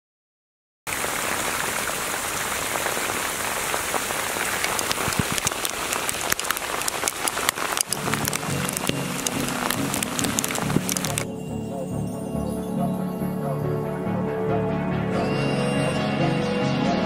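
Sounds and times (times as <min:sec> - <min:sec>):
hail pellets falling: 0:01.0 - 0:11.2.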